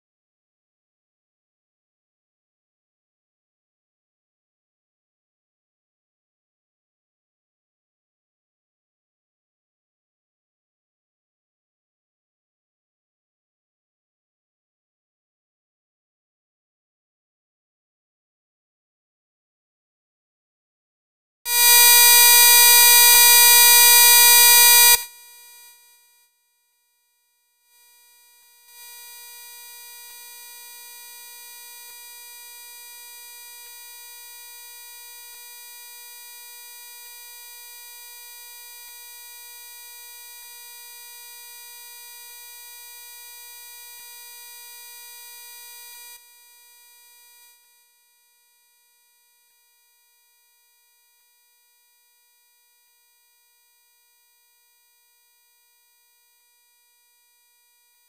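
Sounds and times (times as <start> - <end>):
buzzy electronic tone: 21.5 - 25.1.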